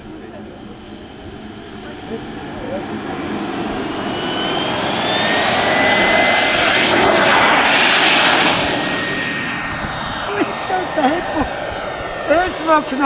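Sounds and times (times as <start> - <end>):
model jet engine whining: 0.0 - 13.0
rushing noise: 3.1 - 13.0.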